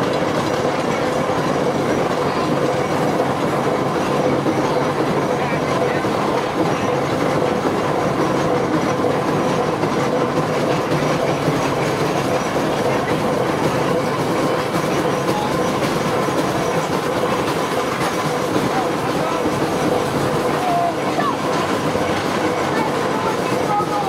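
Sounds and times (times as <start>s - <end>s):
train wheels clattering on rails: 0.0s - 24.0s.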